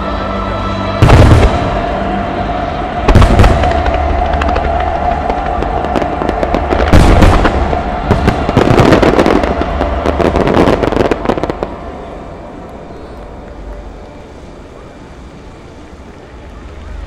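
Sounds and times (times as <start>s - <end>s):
heavy firework boom: 1.0s - 2.0s, 3.0s - 11.8s
firework crackling: 1.0s - 17.0s.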